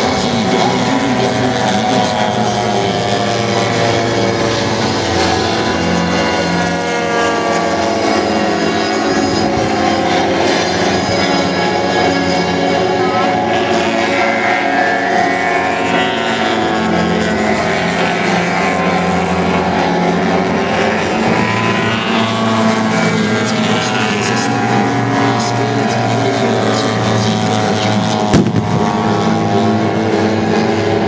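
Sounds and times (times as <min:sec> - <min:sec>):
model aircraft engines: 0:00.0 - 0:31.0
sharp bang: 0:28.3 - 0:29.1.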